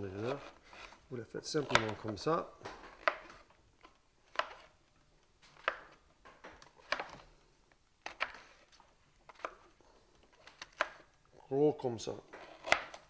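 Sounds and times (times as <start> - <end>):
knife chopping on wooden board: 1.6 - 3.4, 12.3 - 13.0.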